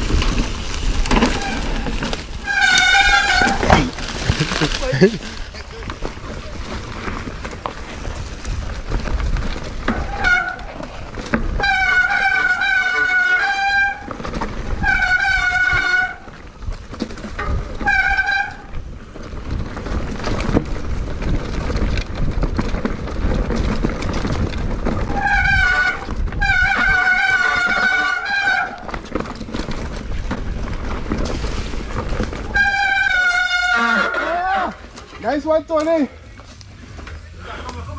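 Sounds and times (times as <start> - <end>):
rushing wind and road noise: 0.0 - 12.8, 13.8 - 28.0
horn honking: 11.6 - 14.0, 25.2 - 28.8, 32.5 - 34.3.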